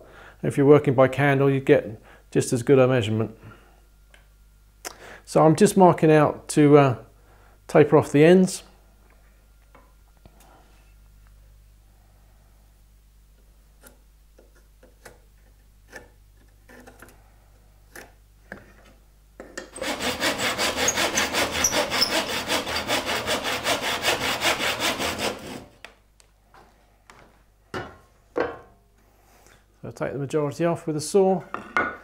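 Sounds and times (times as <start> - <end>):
hand saw cutting wood: 19.7 - 25.8.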